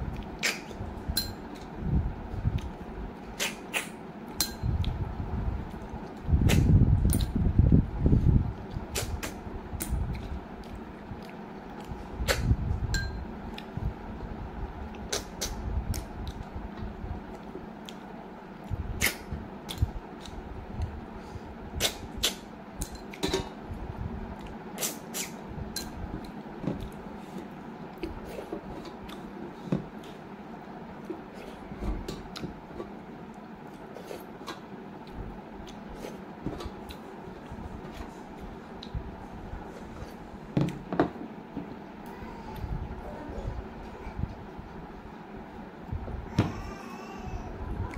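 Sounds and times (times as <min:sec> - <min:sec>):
wet chewing mouth sounds: 0:35.0 - 0:36.2.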